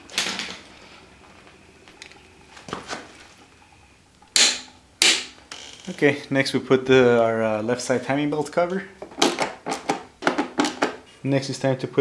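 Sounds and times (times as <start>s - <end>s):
sharp metallic clack: 4.4s - 5.4s.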